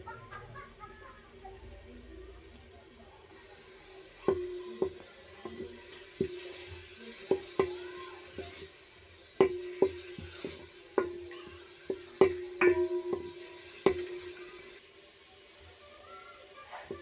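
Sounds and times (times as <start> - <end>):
oil sizzling: 0.0 - 17.0
spatula clanking against metal pan: 4.2 - 14.8.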